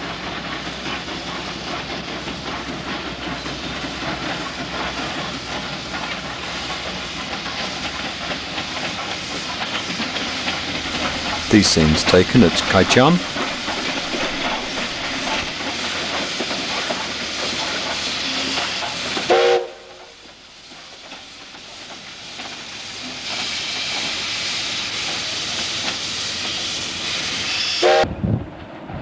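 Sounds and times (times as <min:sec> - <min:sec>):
steam hissing: 0:00.0 - 0:28.1
steam locomotive whistle: 0:18.2 - 0:20.0, 0:27.4 - 0:28.1.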